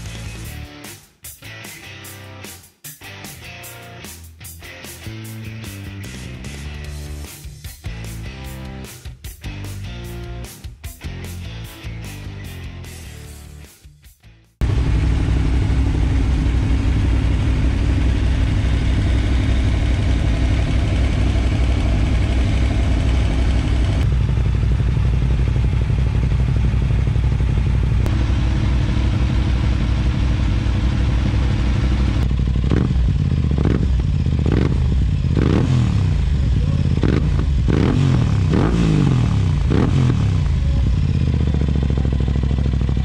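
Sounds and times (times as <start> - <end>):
motorcycle engine revving blips: 14.6 - 43.0
motorcycle engines idling: 14.6 - 43.0.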